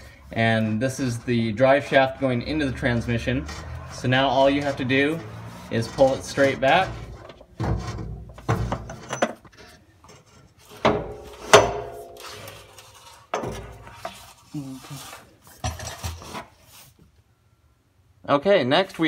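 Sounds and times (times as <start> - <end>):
metal clunks and clinks: 7.2 - 12.2.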